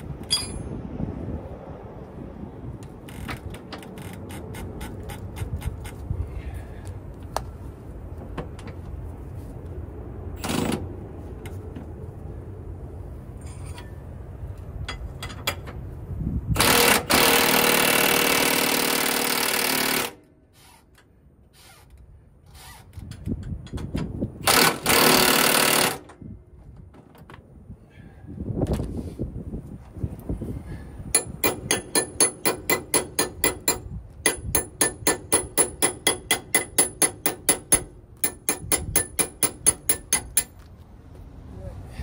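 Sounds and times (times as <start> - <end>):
impact wrench hammering: 31.1 - 40.6.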